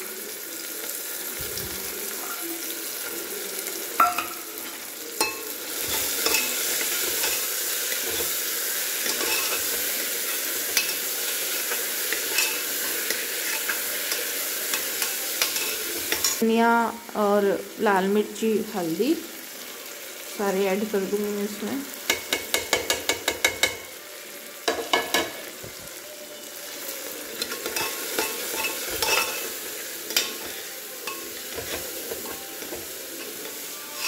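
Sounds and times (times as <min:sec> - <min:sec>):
vegetables sizzling in hot oil: 0:00.0 - 0:34.0
spoon stirring and scraping pot: 0:04.0 - 0:08.4, 0:09.0 - 0:16.4, 0:27.4 - 0:34.0.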